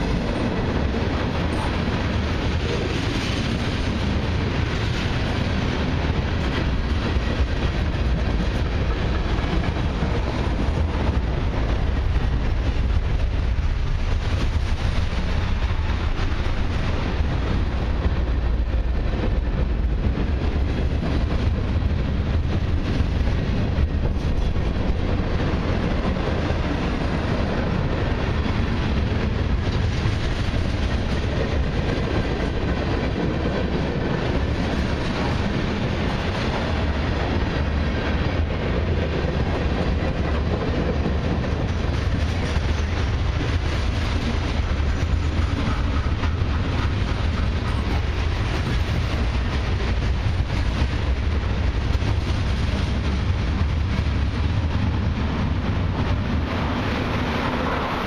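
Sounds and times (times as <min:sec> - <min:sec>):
freight train rolling past: 0:00.0 - 0:58.0
steel wheels rumbling on rails: 0:00.0 - 0:58.0.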